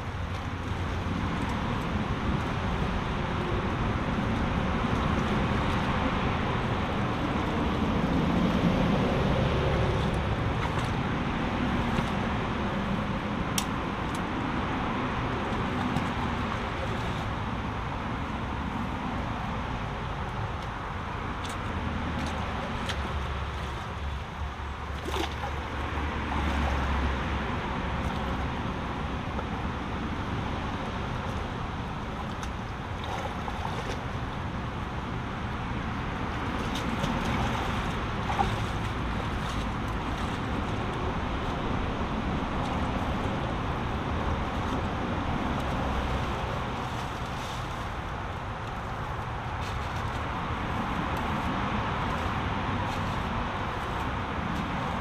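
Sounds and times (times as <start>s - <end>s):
road traffic noise: 0.0s - 55.0s
brook rushing over stones: 35.8s - 55.0s.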